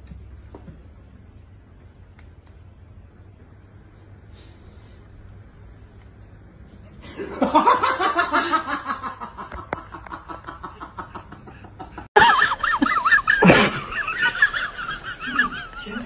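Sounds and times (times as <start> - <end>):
people laughing: 7.0 - 16.0
high wavering laugh: 7.1 - 16.0.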